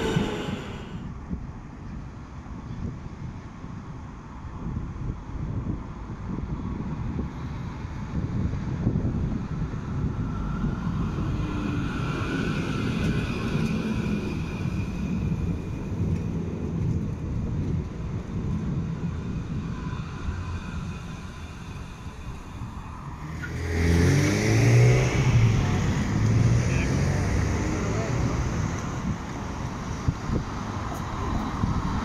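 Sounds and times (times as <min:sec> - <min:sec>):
vehicle accelerating whine: 0:00.0 - 0:01.0, 0:19.4 - 0:30.7
traffic rumble: 0:00.0 - 0:32.0.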